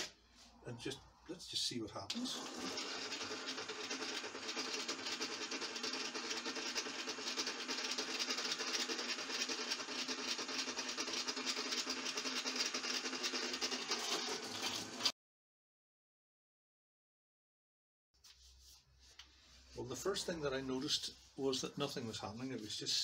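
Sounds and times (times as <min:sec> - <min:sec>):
rock tumbler whirring rattle: 0:02.6 - 0:15.1.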